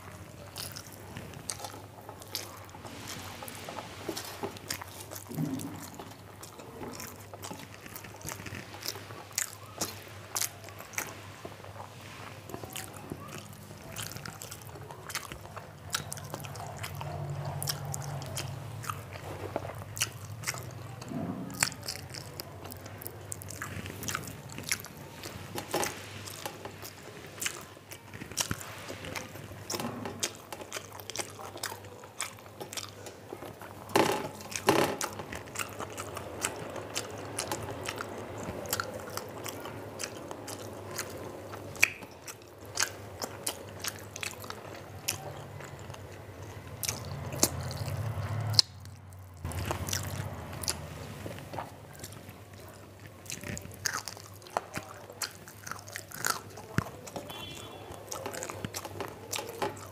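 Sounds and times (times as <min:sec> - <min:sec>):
close chewing with mouth clicks: 0:00.0 - 0:59.9.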